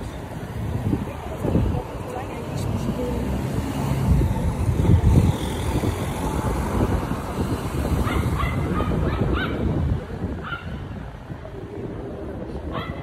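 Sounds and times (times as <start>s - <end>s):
cars driving past: 0.0s - 13.0s
wind buffeting microphone: 0.0s - 13.0s
small dog yipping: 8.0s - 9.6s.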